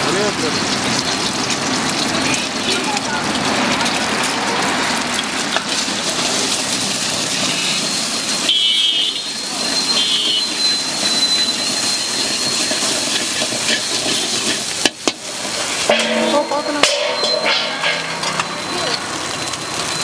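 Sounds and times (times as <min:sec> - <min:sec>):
egg sizzling in hot oil: 0:00.0 - 0:20.0
ladle clinking and scraping wok: 0:09.2 - 0:19.3.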